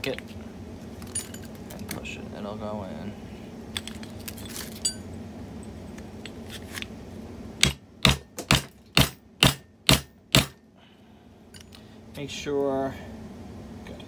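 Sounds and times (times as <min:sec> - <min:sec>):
light clinks of metal parts: 0:01.0 - 0:02.0, 0:03.7 - 0:06.4, 0:11.5 - 0:11.9.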